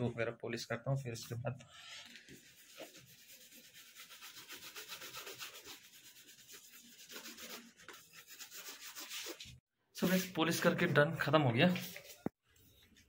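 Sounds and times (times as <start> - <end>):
shoe brush scrubbing a boot: 2.4 - 9.4.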